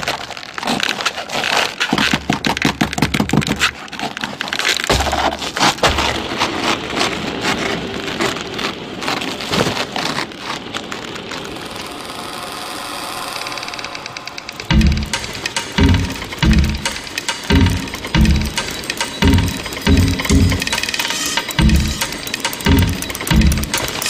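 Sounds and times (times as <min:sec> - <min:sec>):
crackling and clicking: 0:00.0 - 0:24.0
low rumbling drags: 0:11.6 - 0:20.8.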